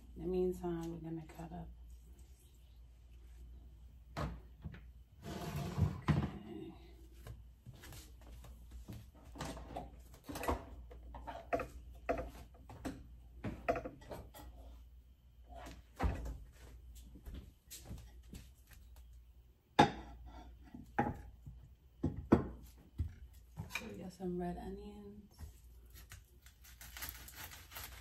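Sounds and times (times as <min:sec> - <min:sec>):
kitchen knocks and clatters: 0:04.1 - 0:06.5, 0:09.1 - 0:14.8, 0:15.6 - 0:16.6, 0:19.8 - 0:24.0.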